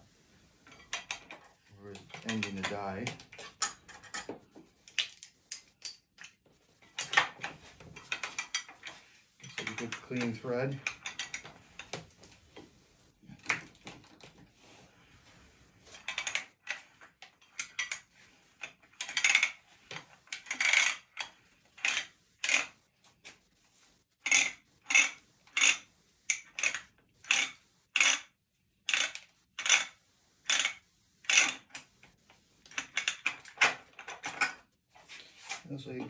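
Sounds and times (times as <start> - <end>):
ratchet scraping strokes: 15.8 - 22.8, 24.2 - 28.3, 28.9 - 31.7.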